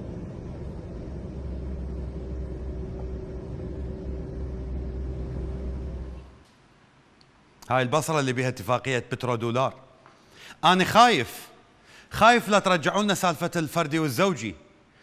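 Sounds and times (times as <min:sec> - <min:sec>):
low traffic rumble: 0:00.0 - 0:06.5
faint steady hum: 0:00.0 - 0:15.0.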